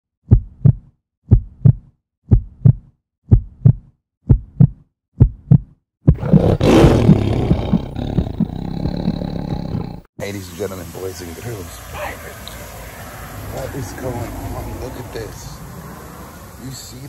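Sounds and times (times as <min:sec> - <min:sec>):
heartbeat thumps: 0:00.2 - 0:06.6, 0:07.5 - 0:10.0.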